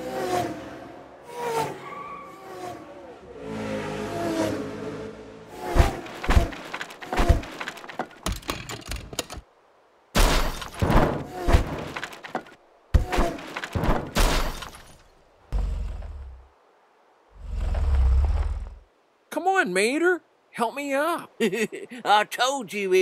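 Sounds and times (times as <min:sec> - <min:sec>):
car crashing and tumbling: 0:05.6 - 0:09.5, 0:10.2 - 0:15.1.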